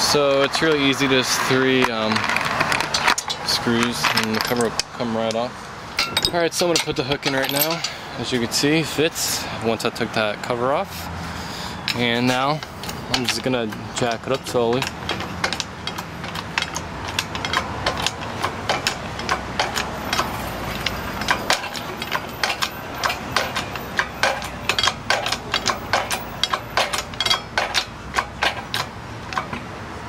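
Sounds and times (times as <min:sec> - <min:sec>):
hoist pump clicks and clanks: 0:00.1 - 0:08.4, 0:11.8 - 0:30.0.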